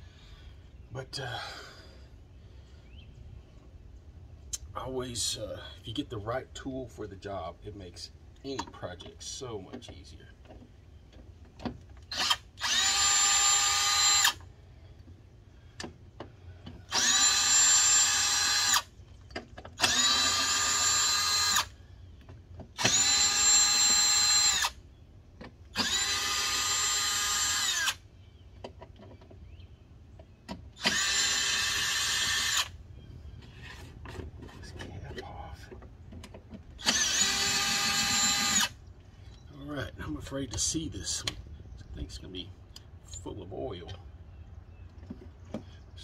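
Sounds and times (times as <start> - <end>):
cordless drill whine: 12.1 - 14.5, 16.8 - 18.9, 19.8 - 21.8, 22.8 - 24.8, 25.8 - 28.0, 30.8 - 32.8, 36.8 - 38.8.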